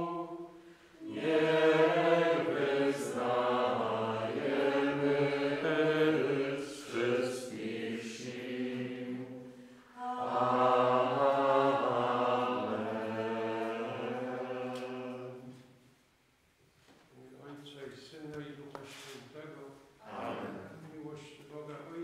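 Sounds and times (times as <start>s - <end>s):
men singing a slow chant: 0.0s - 15.5s.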